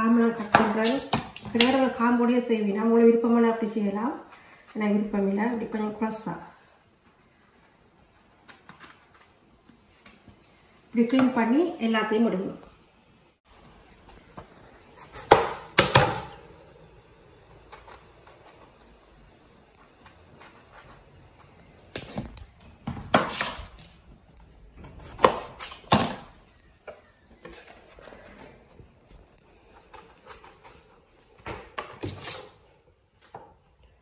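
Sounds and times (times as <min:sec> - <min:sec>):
knife chopping on cutting board: 0:25.0 - 0:26.2.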